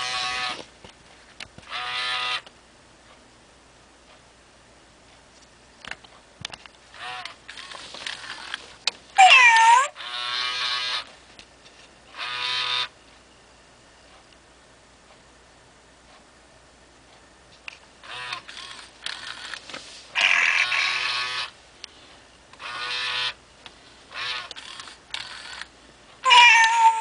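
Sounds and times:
toy kitten meowing: 0:09.2 - 0:10.6, 0:20.2 - 0:21.4, 0:26.2 - 0:27.0.

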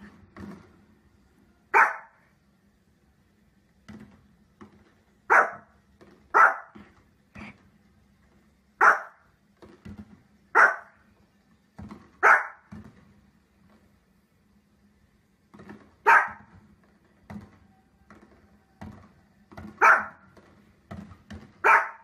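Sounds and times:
small dog barking: 0:01.7 - 0:02.2, 0:05.3 - 0:05.7, 0:06.3 - 0:06.8, 0:08.8 - 0:09.2, 0:10.5 - 0:11.0, 0:12.2 - 0:12.7, 0:16.0 - 0:16.5, 0:19.8 - 0:20.2, 0:21.6 - 0:22.0.

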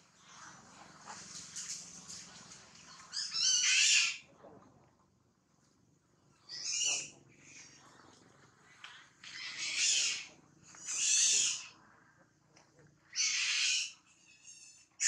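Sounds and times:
macaque shrill cries: 0:03.1 - 0:04.2, 0:06.5 - 0:07.1, 0:09.4 - 0:11.7, 0:13.1 - 0:15.0.

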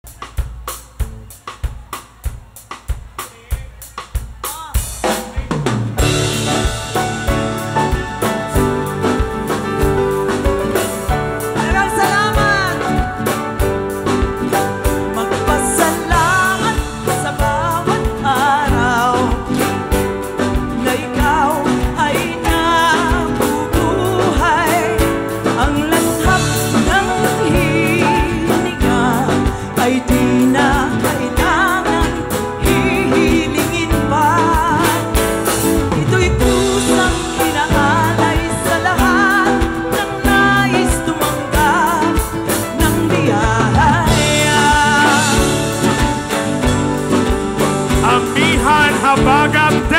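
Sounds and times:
drums keeping a steady beat: 0:00.0 - 0:49.9
woman singing with vibrato: 0:07.7 - 0:13.8, 0:14.9 - 0:49.9.

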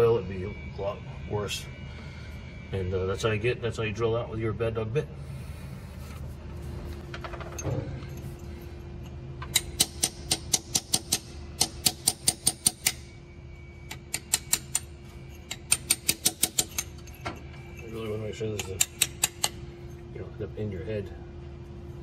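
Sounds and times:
hammer tapping metal chisel: 0:13.9 - 0:19.6.

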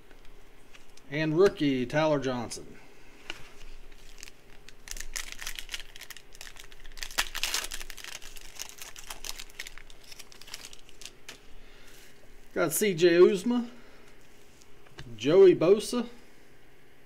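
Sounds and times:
card pack wrapper crinkling and tearing: 0:03.6 - 0:11.5.

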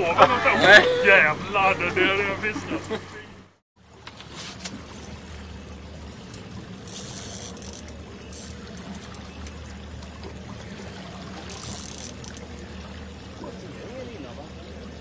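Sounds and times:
boat engine running: 0:00.0 - 0:15.0
water splashing along hull: 0:00.0 - 0:15.0.

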